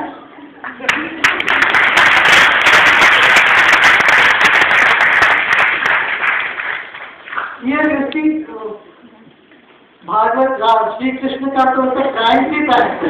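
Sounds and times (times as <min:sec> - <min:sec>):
audience applauding: 0:00.6 - 0:07.6.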